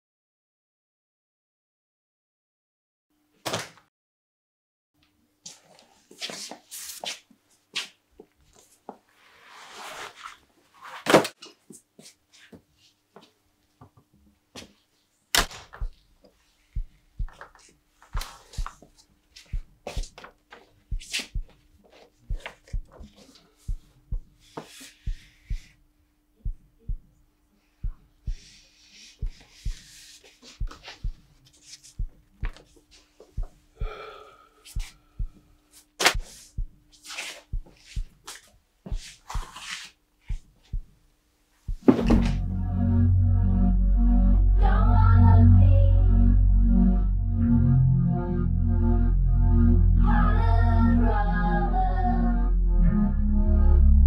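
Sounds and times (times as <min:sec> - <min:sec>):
slow low beat: 0:15.7 - 0:17.6, 0:18.2 - 0:39.6, 0:40.2 - 0:41.0, 0:41.6 - 0:54.0
paper rustling: 0:36.0 - 0:40.0.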